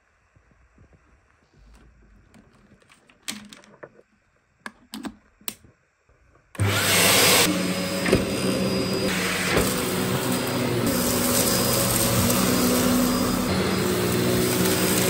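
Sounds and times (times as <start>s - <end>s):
handling clicks and knocks: 1.7s - 5.7s
vacuum cleaner motor whining: 6.6s - 15.0s.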